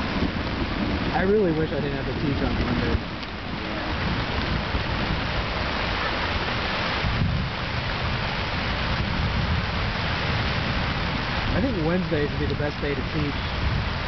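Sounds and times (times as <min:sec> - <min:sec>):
rain on a fabric tent: 0:00.0 - 0:14.0.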